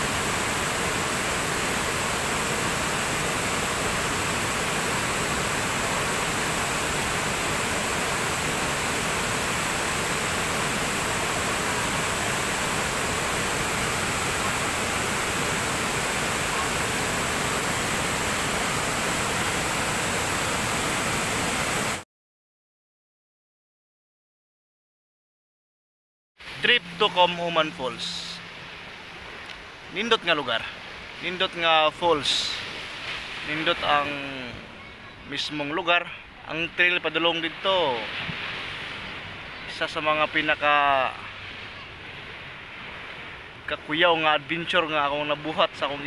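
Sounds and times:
waterfall rushing: 0.0 - 22.0, 26.4 - 35.5.

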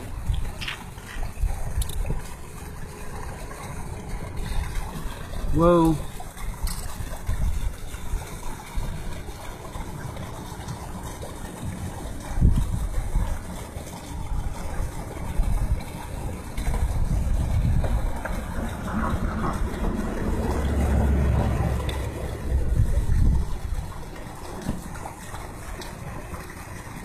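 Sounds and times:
wind buffeting microphone: 6.4 - 9.4, 12.0 - 13.5, 14.2 - 25.4.

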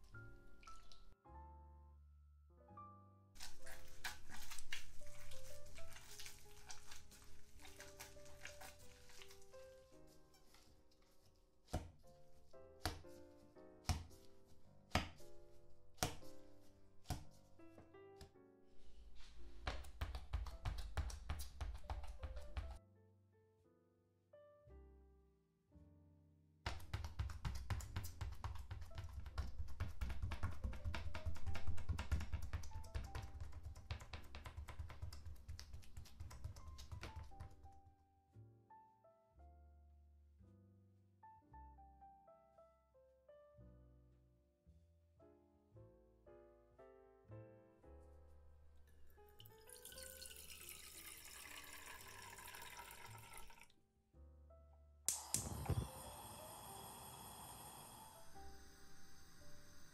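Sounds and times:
soft piano music: 0.0 - 53.1, 53.7 - 55.1
water pouring into a pot: 3.4 - 9.5, 49.1 - 53.7
stick pounding dough: 12.8 - 13.2, 13.8 - 14.3, 16.0 - 16.3, 19.7 - 22.8, 26.7 - 37.6
gas burner igniter clicks: 55.1 - 56.1
gas flame whoosh and hiss: 55.1 - 59.9.

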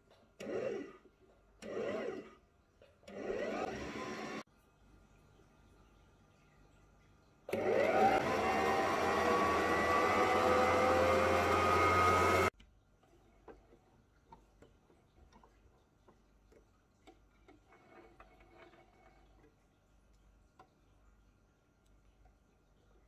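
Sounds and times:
sewing machine motor running: 1.6 - 2.4, 3.1 - 4.4, 7.5 - 12.5
faint clicks and handling noises: 12.6 - 23.0.

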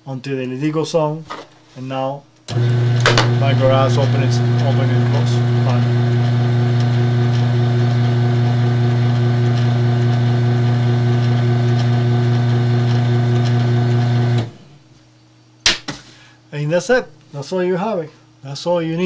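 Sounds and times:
garage door opener motor humming: 2.4 - 14.8.

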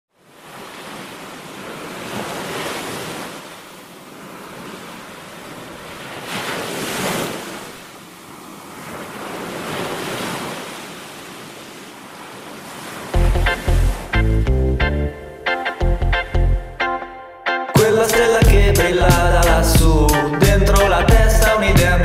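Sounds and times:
waves washing against rocks: 0.4 - 14.1.

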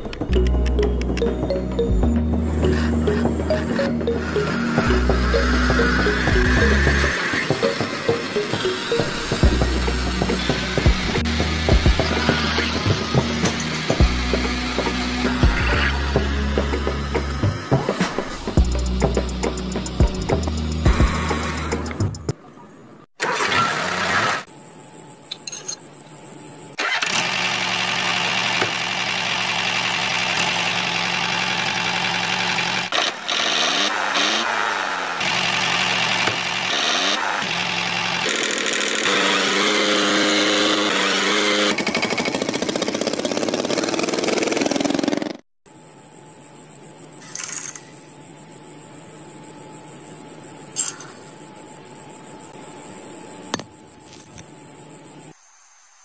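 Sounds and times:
toy tractor engine running: 2.6 - 15.7, 26.8 - 45.4.

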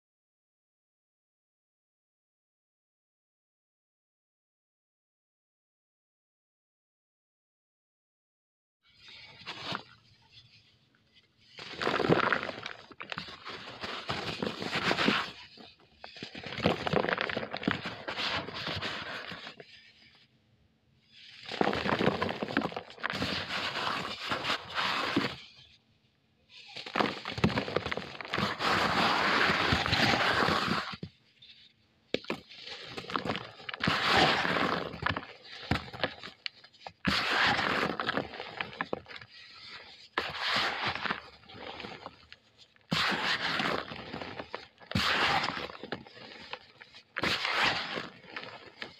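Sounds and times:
cement crunching and crackling: 9.0 - 20.1, 21.1 - 25.6, 26.5 - 48.9.

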